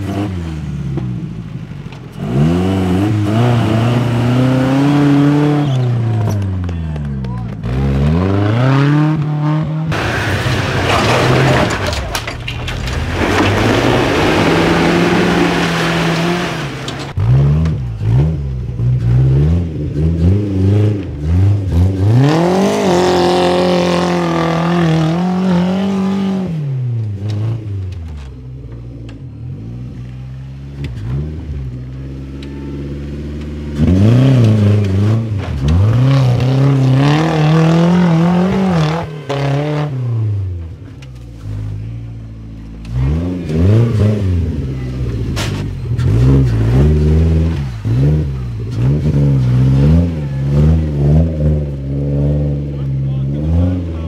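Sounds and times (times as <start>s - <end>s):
off-road engines revving: 0.0s - 54.0s
spinning tyres throwing dirt: 10.0s - 17.2s.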